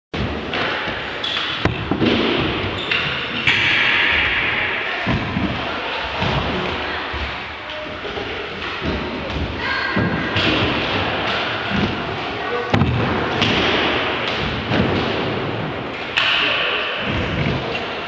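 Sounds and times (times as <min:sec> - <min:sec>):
sharp thuds and knocks: 0:00.1 - 0:06.7.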